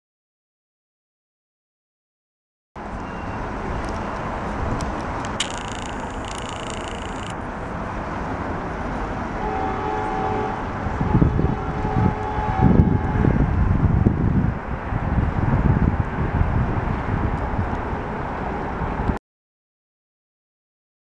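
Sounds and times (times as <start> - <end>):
rumble of engines and traffic: 2.8 - 19.2
wind buffeting microphone: 10.8 - 19.2.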